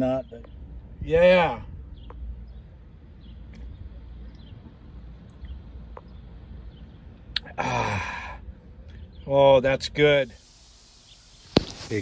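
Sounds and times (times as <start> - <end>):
man sighing aah: 7.4 - 8.4.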